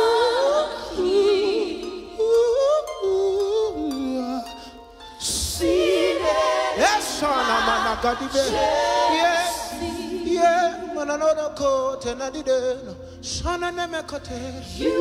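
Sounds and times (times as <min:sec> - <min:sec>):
group singing gospel song: 0:00.0 - 0:03.3, 0:05.2 - 0:12.6, 0:14.3 - 0:15.0.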